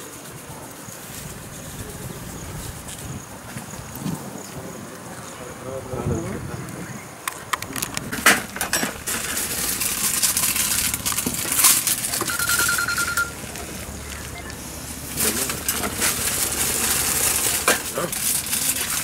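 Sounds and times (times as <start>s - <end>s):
metal and glass clinking: 8.3s - 13.4s.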